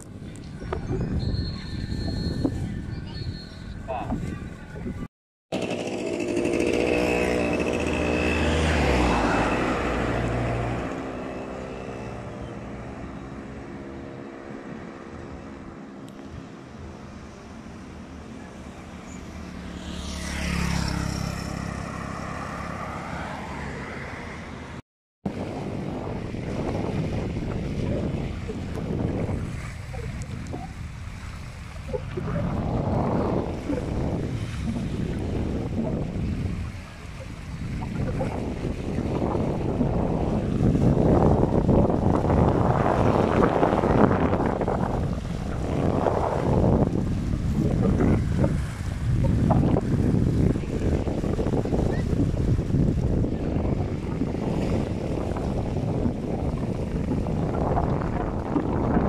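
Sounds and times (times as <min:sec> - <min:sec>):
wind buffeting microphone: 0:00.0 - 0:05.1, 0:25.3 - 0:59.0
traffic passing close by: 0:05.5 - 0:59.0.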